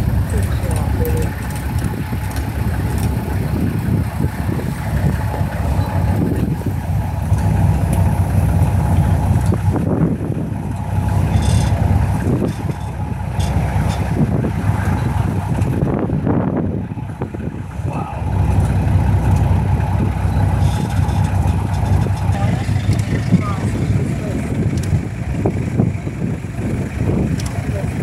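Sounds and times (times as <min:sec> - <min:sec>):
vehicle engine idling: 0:00.0 - 0:28.0.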